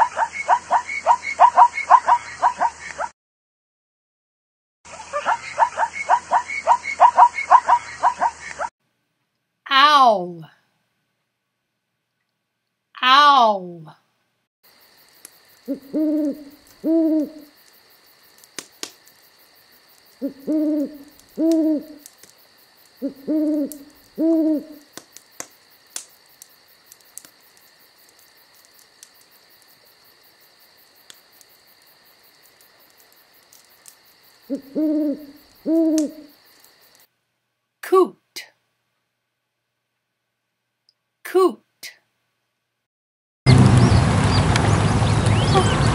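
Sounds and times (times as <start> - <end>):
faint clicks: 15.0 - 16.8, 17.4 - 19.3, 21.0 - 23.1, 24.8 - 29.8, 30.8 - 34.3, 35.4 - 37.1
owl two-note hoot: 15.7 - 17.5, 20.2 - 22.0, 23.0 - 24.8, 34.5 - 36.3.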